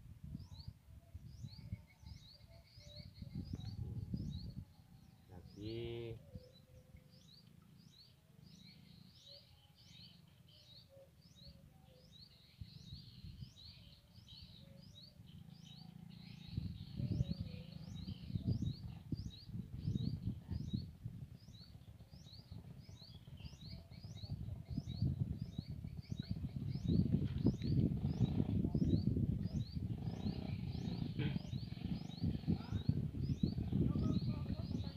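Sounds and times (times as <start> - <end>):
bird chirping: 0.3 - 34.9
low irregular rumble: 15.2 - 34.9.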